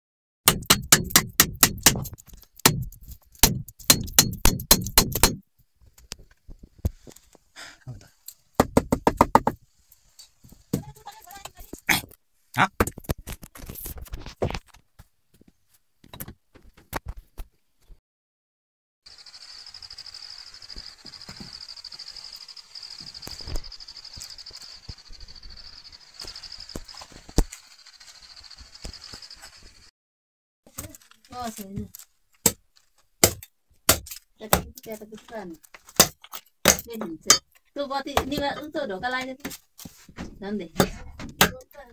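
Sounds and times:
sharp knocks: 0.5 - 5.4
insect chorus pulsing: 19.1 - 29.9.

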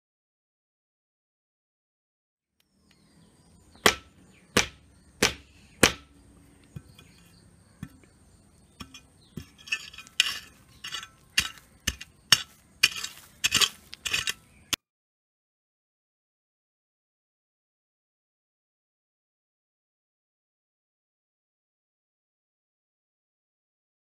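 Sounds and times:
chopping strikes on stems: 3.8 - 7.2, 11.2 - 14.4
stems and leaves rustling: 8.0 - 14.8.

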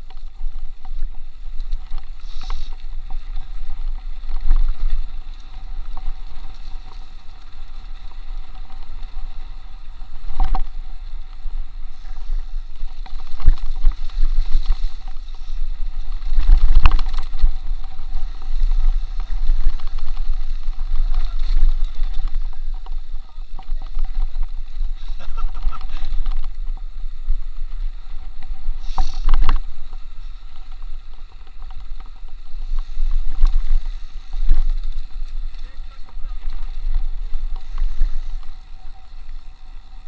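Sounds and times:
bike tyres and frame rattling: 0.0 - 40.0
wind buffeting microphone: 0.0 - 40.0.

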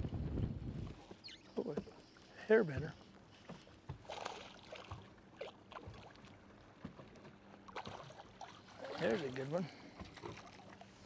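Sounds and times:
water lapping against boat: 0.0 - 11.0.

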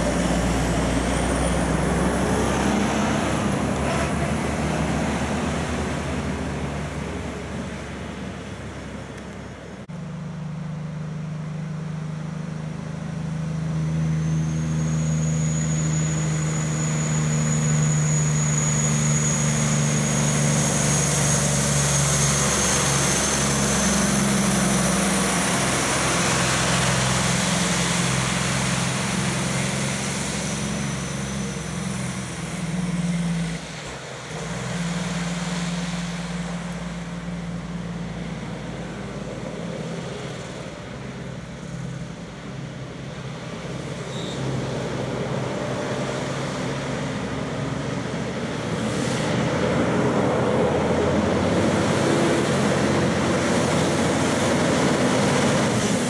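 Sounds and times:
heavy truck engine running: 0.0 - 56.0
truck engine low note: 0.0 - 56.0
high whistle: 14.4 - 24.4
tyre hiss on wet road: 21.4 - 38.9.

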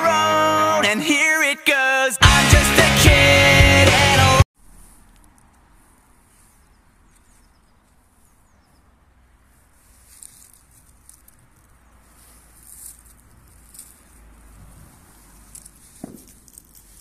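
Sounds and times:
leaves rustling: 4.6 - 8.5, 9.1 - 17.0.

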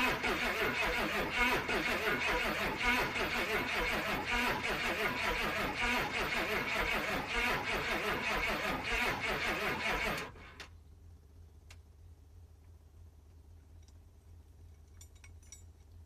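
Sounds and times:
diesel engine cranking: 0.0 - 10.7.

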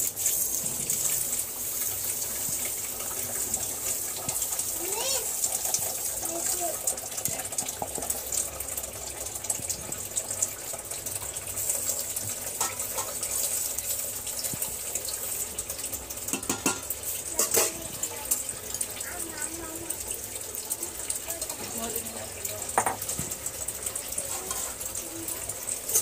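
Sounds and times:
utensil stirring and scraping pot: 11.7 - 13.8, 16.3 - 18.1, 24.1 - 25.0, 25.8 - 26.0
metal knocks on pot: 16.3 - 17.8, 22.7 - 23.4.

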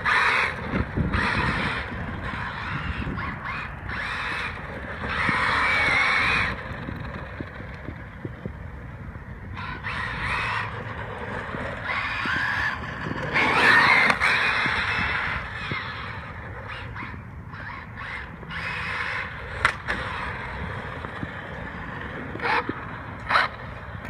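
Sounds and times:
crows cawing: 0.0 - 6.6, 9.6 - 11.0, 13.4 - 19.4.

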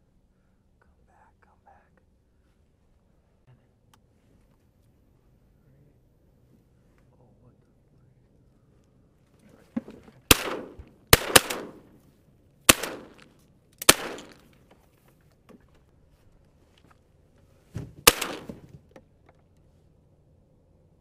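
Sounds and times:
shotgun blasts with echo: 10.3 - 12.0, 12.7 - 14.5, 18.0 - 18.7.

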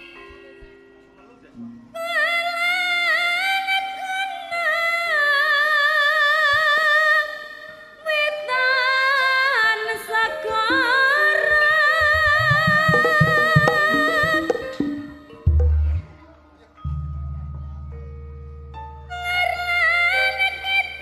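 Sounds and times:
woman singing with vibrato: 2.0 - 16.2, 19.1 - 21.0
percussion: 10.7 - 18.9.

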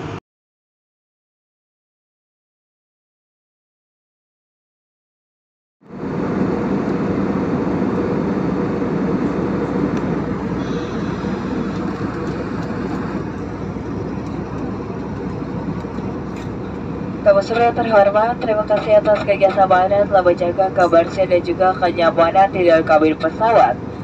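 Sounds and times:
jet engines and rushing air: 0.0 - 0.2, 5.8 - 24.0.

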